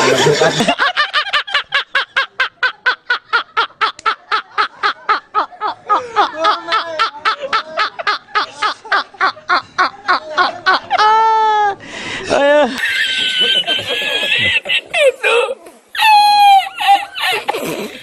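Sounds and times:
lower-pitched person laughing: 12.8s - 18.0s.

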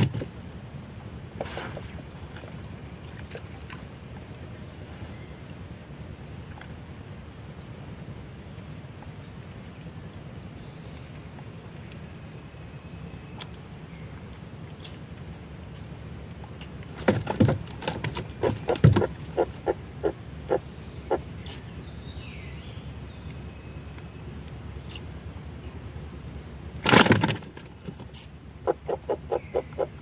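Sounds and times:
loud knocks and thumps: 17.0s - 19.2s.

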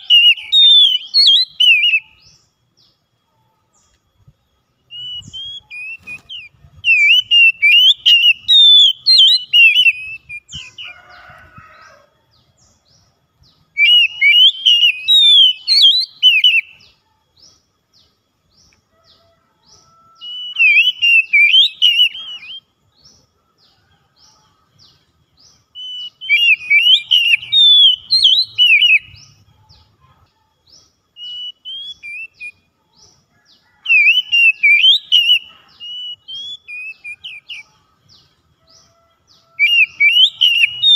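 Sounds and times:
bird singing whistled phrases: 0.0s - 2.4s, 4.9s - 10.8s, 13.7s - 17.0s, 20.2s - 22.7s, 25.8s - 29.3s, 31.2s - 32.6s, 33.7s - 37.7s, 39.5s - 40.9s.

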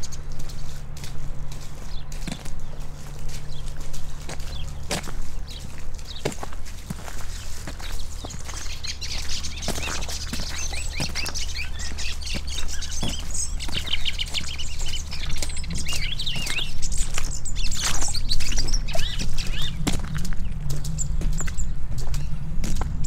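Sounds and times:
footsteps on wet gravel: 0.0s - 23.0s
low rumble: 0.0s - 23.0s
small birds chirping: 0.0s - 23.0s.

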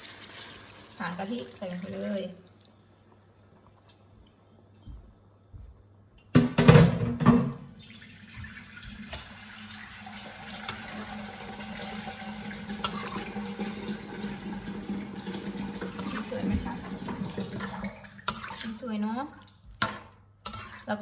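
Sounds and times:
spatula scraping a wok: 12.8s - 13.3s, 19.8s - 21.0s.

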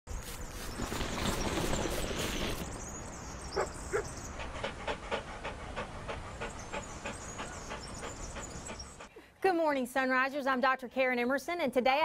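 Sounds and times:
dog panting rapidly: 3.6s - 9.1s.

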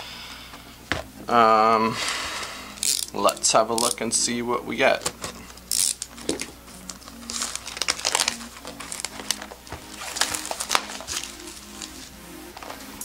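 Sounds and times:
quiet background music: 0.0s - 13.0s
plastic shrink wrap crinkling: 4.9s - 13.0s.

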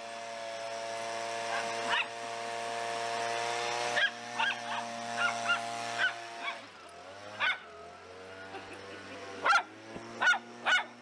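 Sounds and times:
leaf blower drone: 0.0s - 11.0s
small dogs yipping and barking: 1.4s - 2.2s, 3.9s - 7.9s, 8.5s - 11.0s.

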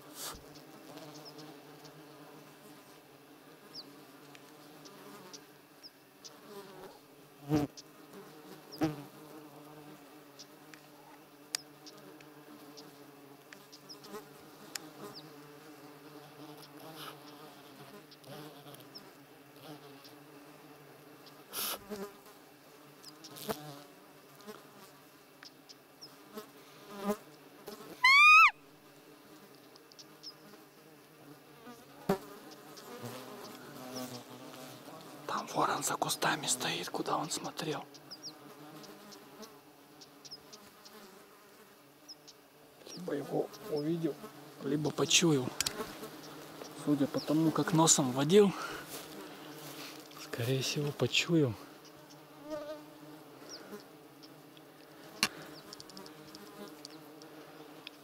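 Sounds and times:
horseflies buzzing: 0.0s - 58.0s
high squeaky call: 28.0s - 28.6s.

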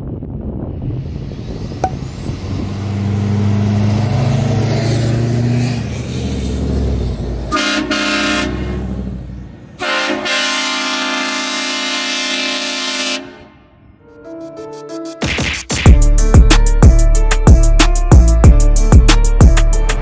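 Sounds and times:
diesel truck engine: 0.2s - 9.9s
train horn blasts: 7.5s - 8.8s, 9.8s - 14.3s.

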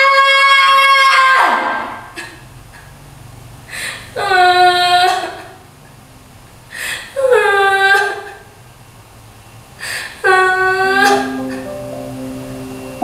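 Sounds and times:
sharp gasping breath: 3.7s - 4.2s, 6.7s - 7.2s, 9.8s - 10.2s.

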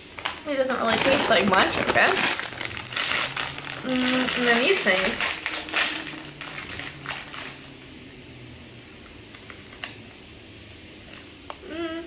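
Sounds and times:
crinkly plastic bag crackling: 0.0s - 7.8s.

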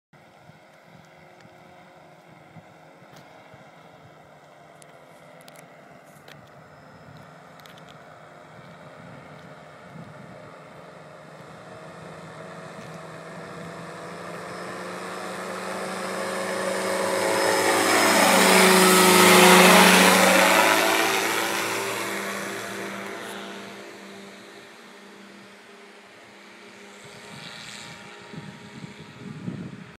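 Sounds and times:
powered parachute engine passing overhead: 0.2s - 30.0s.

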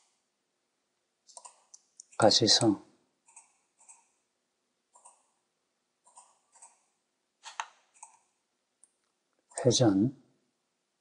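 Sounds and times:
computer mouse clicking: 1.3s - 2.2s, 3.2s - 4.2s, 4.9s - 5.4s, 6.0s - 6.9s, 7.5s - 9.7s.

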